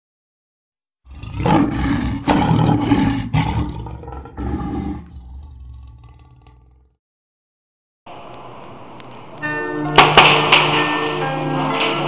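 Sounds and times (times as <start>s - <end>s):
lion roaring: 1.0s - 7.0s.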